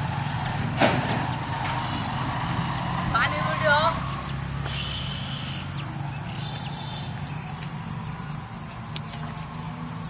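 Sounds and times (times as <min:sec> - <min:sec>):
high bird chirps: 0:04.3 - 0:07.6.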